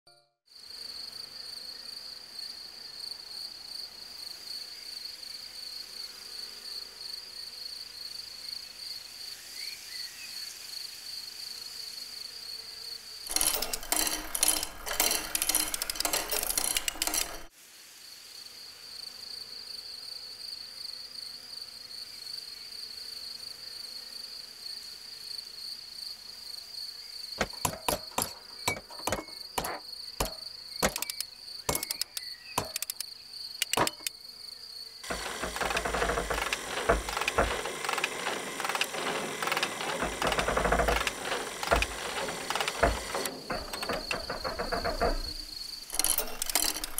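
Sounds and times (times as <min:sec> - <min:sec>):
loud rasping burst: 0:13.3 - 0:17.5, 0:27.4 - 0:33.0, 0:35.0 - 0:46.9
sharp clicks: 0:13.3 - 0:17.5, 0:27.4 - 0:34.1, 0:35.1 - 0:46.9.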